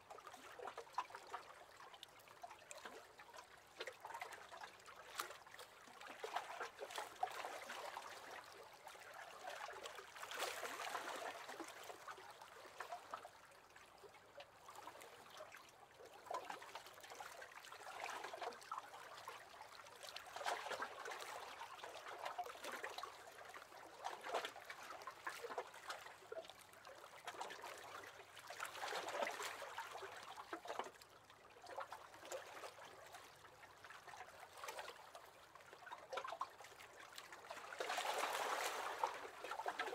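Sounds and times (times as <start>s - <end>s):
small waves lapping against boat hull: 0.0s - 39.9s.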